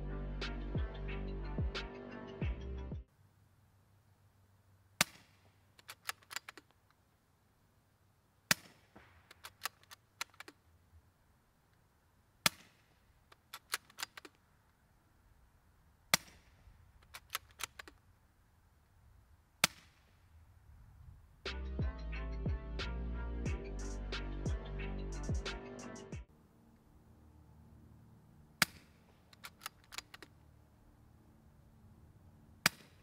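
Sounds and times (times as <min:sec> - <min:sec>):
suppressed rifle shots: 0:05.0 - 0:06.7, 0:08.5 - 0:10.6, 0:12.4 - 0:14.4, 0:16.1 - 0:18.0, 0:28.6 - 0:30.3, 0:32.6 - 0:33.0.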